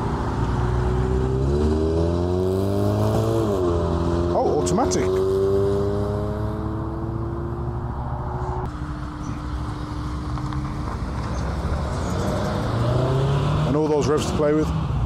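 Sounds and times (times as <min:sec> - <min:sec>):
car engine at low revs: 0:00.0 - 0:14.6
sports car engine accelerating: 0:00.0 - 0:15.0.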